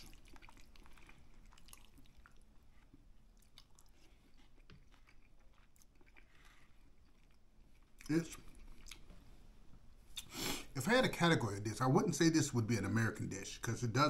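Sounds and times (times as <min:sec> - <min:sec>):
faint chewing: 0:00.0 - 0:09.4.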